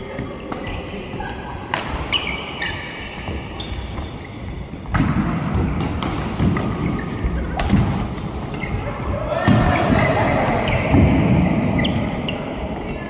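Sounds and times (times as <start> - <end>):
shoe squeaks: 0.2 - 1.3, 2.1 - 4.9, 6.8 - 7.6, 8.5 - 9.0, 9.7 - 13.0
rackets striking shuttlecock: 4.8 - 9.6.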